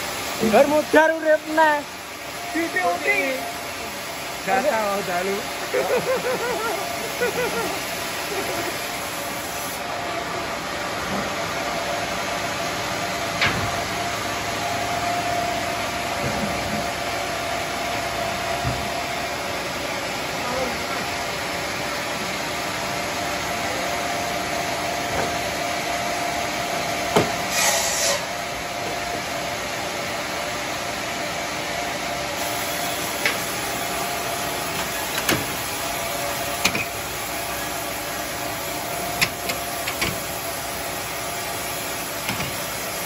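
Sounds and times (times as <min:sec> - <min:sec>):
sawmill machinery whirring hum: 0:00.0 - 0:43.0.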